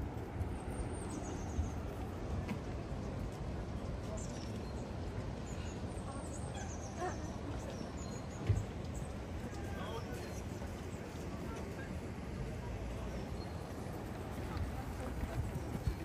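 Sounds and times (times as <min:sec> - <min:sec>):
low city hum: 0:00.0 - 0:16.0.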